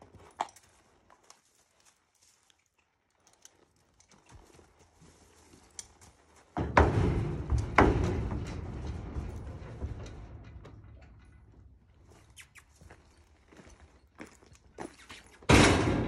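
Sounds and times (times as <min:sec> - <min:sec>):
horse hooves on dirt: 0:00.0 - 0:16.0
hooves clattering on trailer floor: 0:03.3 - 0:16.0.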